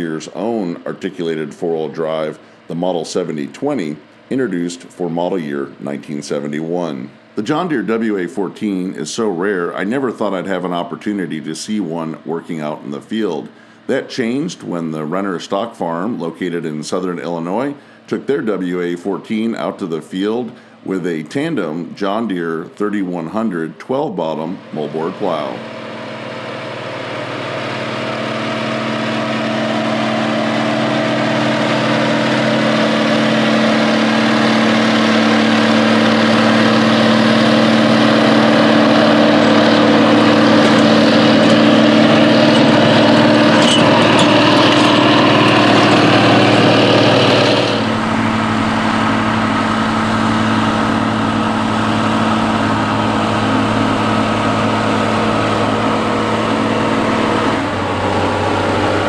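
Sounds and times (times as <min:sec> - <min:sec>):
tractor diesel engine under load: 0:24.4 - 0:59.0.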